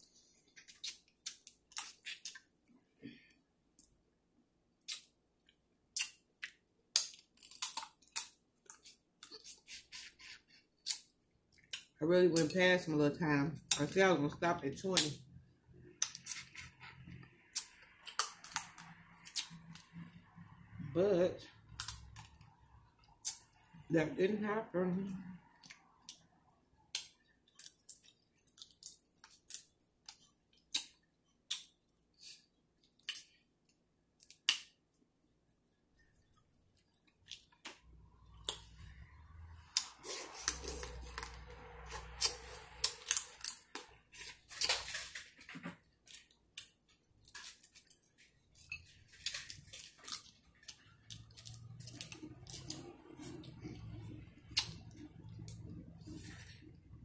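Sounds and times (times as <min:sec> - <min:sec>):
sucking and chewing: 0:00.0 - 0:02.5, 0:04.8 - 0:12.5, 0:15.9 - 0:20.7, 0:25.4 - 0:34.7, 0:38.2 - 0:45.1, 0:46.0 - 0:57.0
crab shells cracking: 0:06.9 - 0:08.4.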